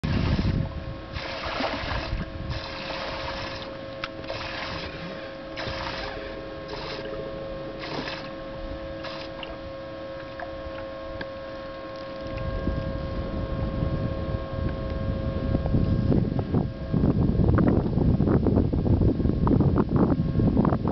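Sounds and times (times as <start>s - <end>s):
electric motor hum: 0.0s - 20.9s
wind rumble on microphone: 0.0s - 20.9s
short bursts of noise: 9.0s - 9.6s.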